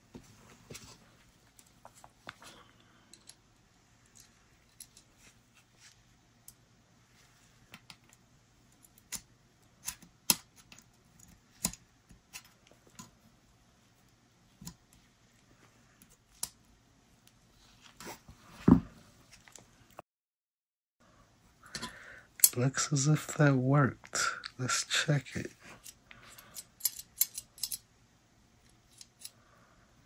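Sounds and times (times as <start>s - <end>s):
clicks of small steel parts: 3.1s - 3.4s, 25.8s - 27.8s.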